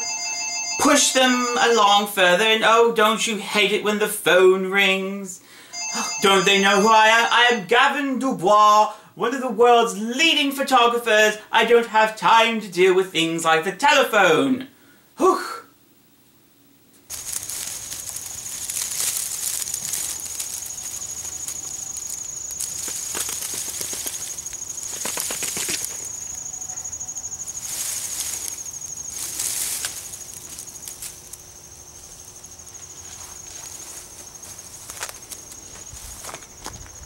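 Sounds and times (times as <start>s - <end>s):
insect trilling: 0.0s - 2.6s, 5.8s - 7.7s, 17.1s - 37.0s
rustling noise: 16.9s - 26.5s, 27.4s - 31.4s, 32.7s - 37.0s.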